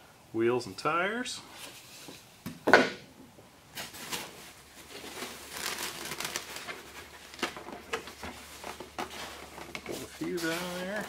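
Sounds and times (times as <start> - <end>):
plastic wrap crinkling: 3.8 - 11.0.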